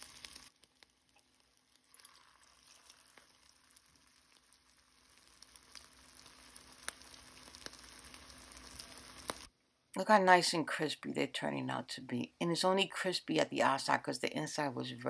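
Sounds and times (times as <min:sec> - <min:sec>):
faint sizzling in frying pan: 0:00.0 - 0:09.5
spattering oil pops: 0:00.0 - 0:09.5.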